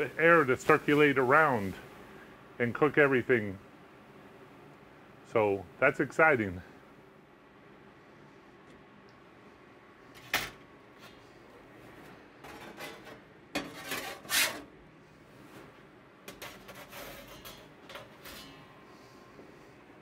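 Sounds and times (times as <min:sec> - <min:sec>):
metal peel scraping grates: 0:12.6 - 0:14.7, 0:16.3 - 0:18.7.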